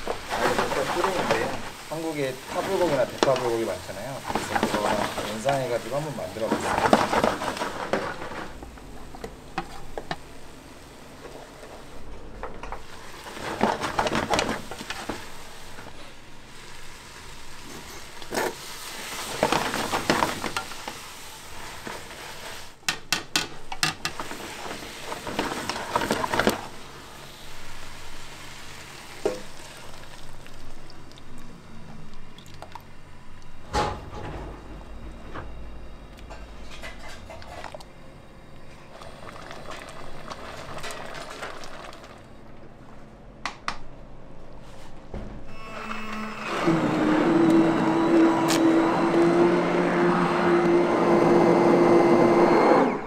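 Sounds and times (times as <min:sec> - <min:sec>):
utensil stirring food: 0:00.0 - 0:12.0, 0:12.8 - 0:32.9.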